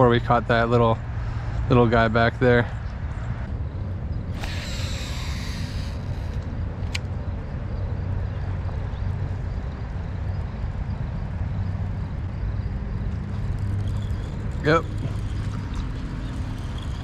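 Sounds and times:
distant road traffic rumble: 0.0 - 17.0
sharp click: 4.4 - 7.1.

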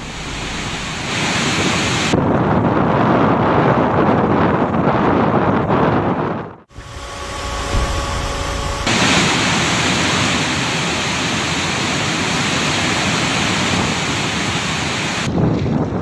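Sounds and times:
water rushing through spillway: 0.0 - 2.2, 8.9 - 15.4.

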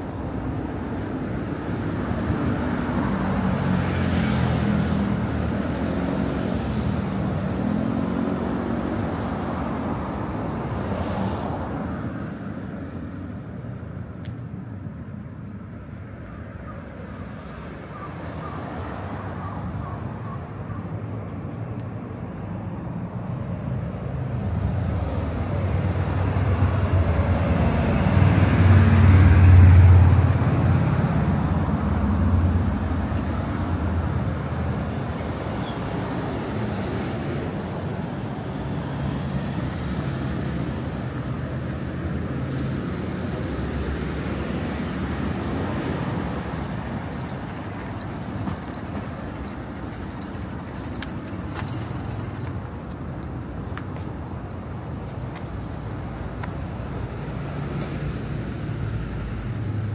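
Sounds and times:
steady traffic noise: 0.0 - 59.9
vehicle passing close by: 24.1 - 52.8.

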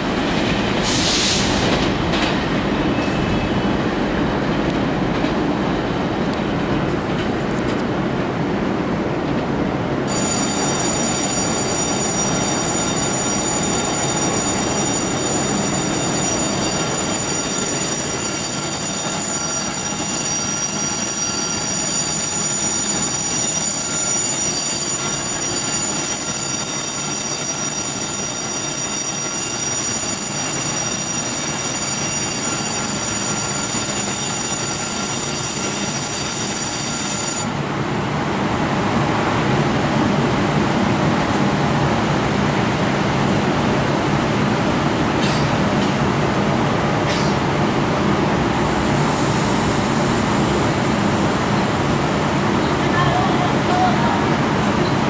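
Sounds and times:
train rumble: 0.0 - 27.3, 37.5 - 55.0
train brake squeal: 0.8 - 1.8, 10.1 - 37.6, 47.1 - 47.4.

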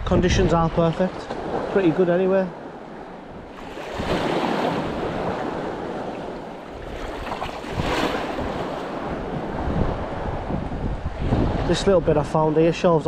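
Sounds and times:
wind buffeting microphone: 0.0 - 13.0
sea water splashing against rocks: 3.5 - 9.7.

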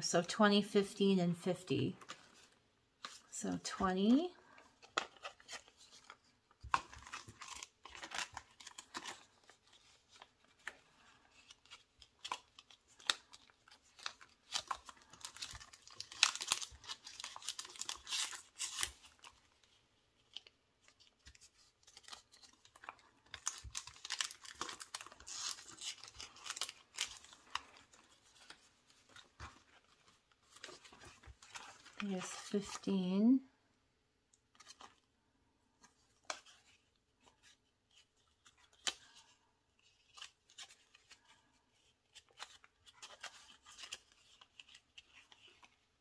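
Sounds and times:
paper bills rustling: 20.2 - 32.9.

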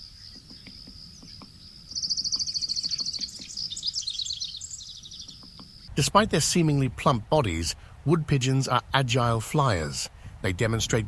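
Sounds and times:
soft high bird chirps: 0.0 - 5.9
songbird rapid high trill: 0.0 - 5.9.

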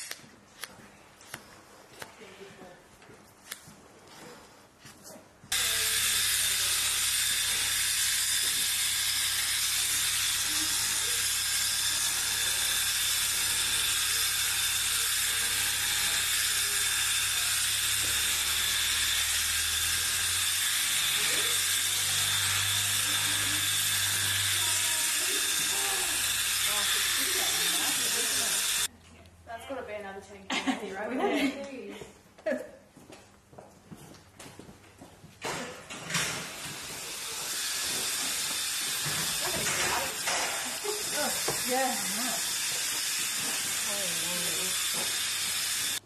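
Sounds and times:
scissors snipping wool: 0.0 - 2.2
electric shearing handpiece running: 5.5 - 28.9, 36.1 - 46.0.

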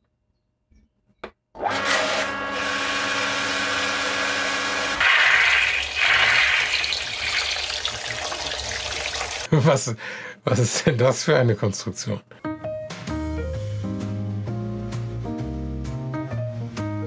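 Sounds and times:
pump motor hum: 1.6 - 9.5
water rushing through pump: 4.9 - 9.5.

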